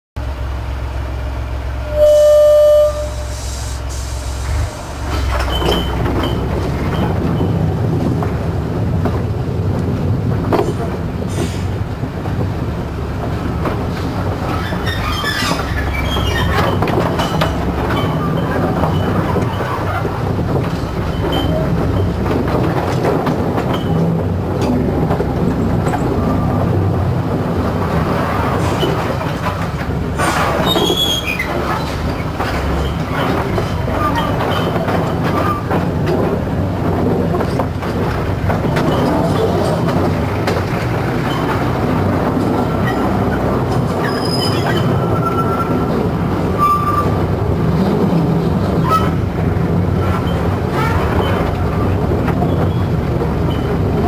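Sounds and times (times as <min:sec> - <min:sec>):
locomotive engine running: 0:00.2 - 0:54.0
locomotive horn toot: 0:01.8 - 0:04.6
wagons rattling on track: 0:05.0 - 0:54.0
wheel squeaks: 0:05.2 - 0:07.6, 0:14.5 - 0:20.1, 0:21.0 - 0:22.2, 0:30.5 - 0:35.8, 0:44.0 - 0:45.9, 0:52.4 - 0:53.8.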